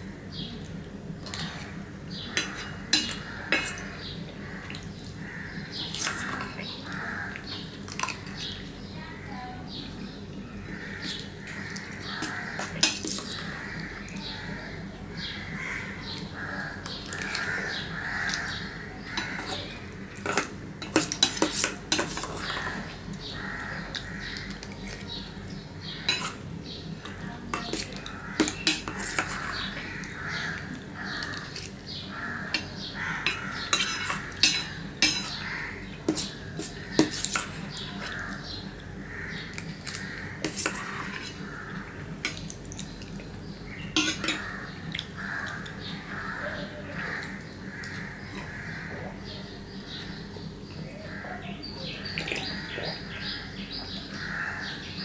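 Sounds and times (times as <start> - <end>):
eating sounds: 0.5 - 54.6
spoon scraping metal bowl: 2.3 - 3.9, 5.9 - 6.7, 11.8 - 13.8, 19.1 - 23.1, 26.0 - 26.4, 27.0 - 31.8, 32.5 - 35.5, 36.1 - 38.4, 39.9 - 41.5, 43.9 - 44.5.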